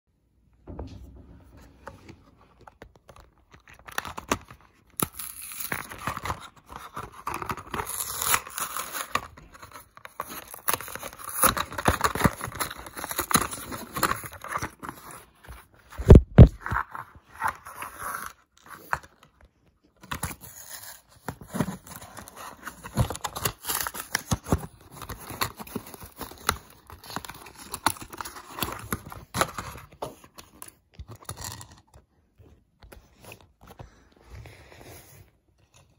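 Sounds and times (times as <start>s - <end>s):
heavy thump: 0.6s - 2.2s
cardboard and plastic tearing: 2.6s - 19.4s, 20.0s - 31.8s.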